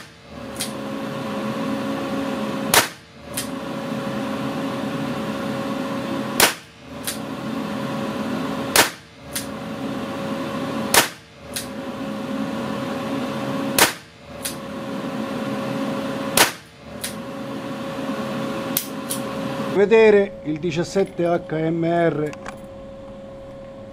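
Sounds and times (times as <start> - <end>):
revolver gunshots: 2.7 - 3.5, 6.4 - 7.2, 8.7 - 9.5, 10.9 - 11.6, 13.7 - 14.1, 16.3 - 16.8.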